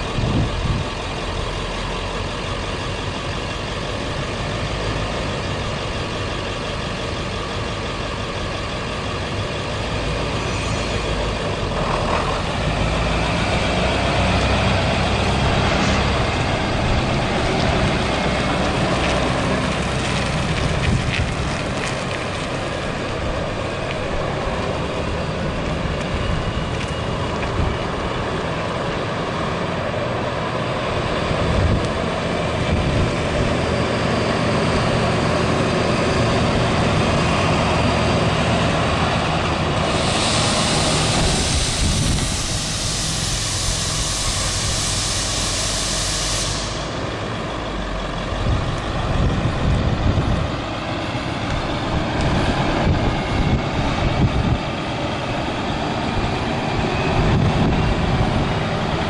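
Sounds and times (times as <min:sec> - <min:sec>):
diesel truck engine running: 0:00.0 - 0:59.0
long hiss: 0:39.8 - 0:47.2.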